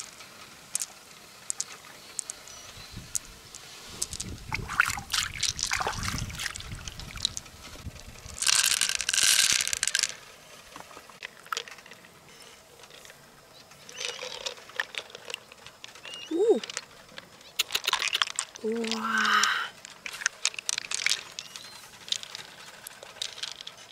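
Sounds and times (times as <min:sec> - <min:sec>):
water trickling and splashing: 0:03.0 - 0:09.0.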